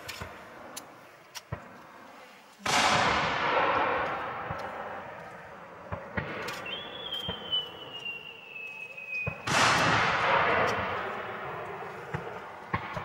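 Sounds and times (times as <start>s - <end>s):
firework pops: 5.9s - 11.3s, 12.0s - 13.0s.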